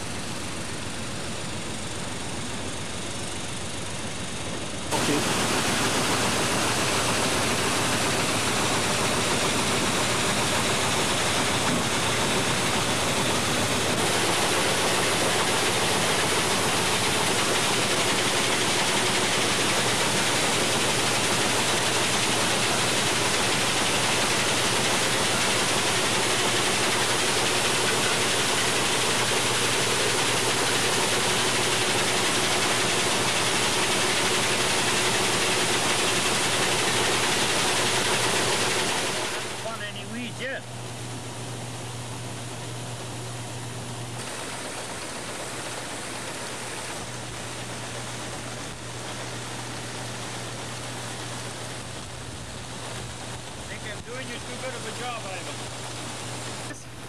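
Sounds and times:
grain cleaning machine rushing: 4.2s - 57.0s.

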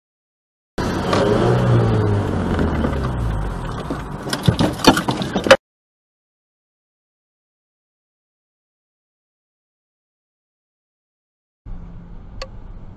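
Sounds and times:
vehicle and road rumble: 0.8s - 5.6s, 11.7s - 12.9s
sharp knocks and clatter: 2.6s - 5.6s.

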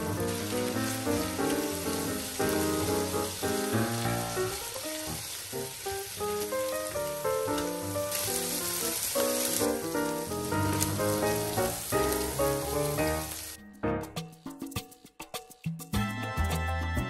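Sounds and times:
clams sizzling in hot oil: 0.0s - 13.6s
background music: 0.0s - 17.0s.

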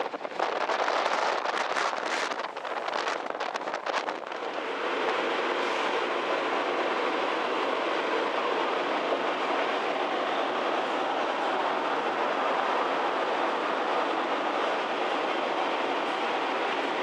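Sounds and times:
ferry rushing noise: 0.0s - 17.0s
wind buffeting microphone: 0.0s - 17.0s.

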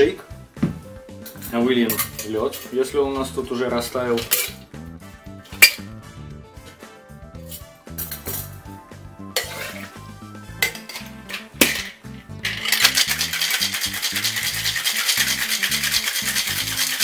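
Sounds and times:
ice rattling in shaker: 11.7s - 17.0s.

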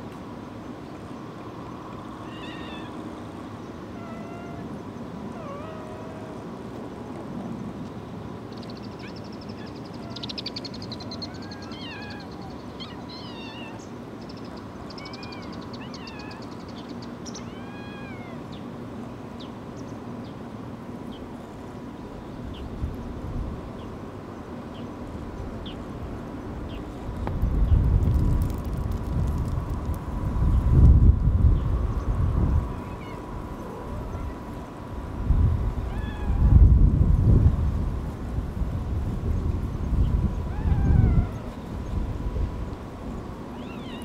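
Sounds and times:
outdoor background noise: 0.0s - 44.0s
kittens mewing: 11.2s - 13.8s.

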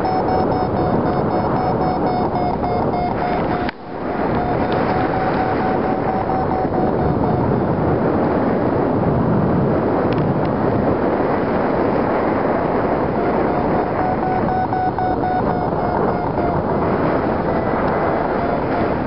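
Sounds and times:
thin high tone: 0.0s - 7.7s, 13.2s - 18.8s
wind rushing over microphone: 0.0s - 19.0s.

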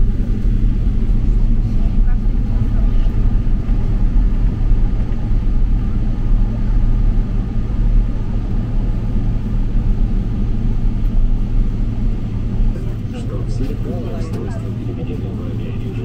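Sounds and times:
faint steady whine: 0.0s - 16.0s
low rumble in airliner cabin: 0.0s - 16.0s.

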